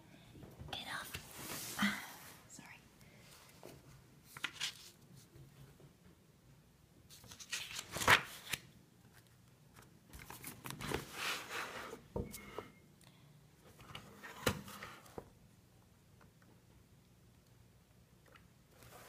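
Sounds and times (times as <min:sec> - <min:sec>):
paper pages rustling: 0:04.2 - 0:05.3, 0:07.1 - 0:11.8
sharp paper snaps: 0:07.2 - 0:08.7.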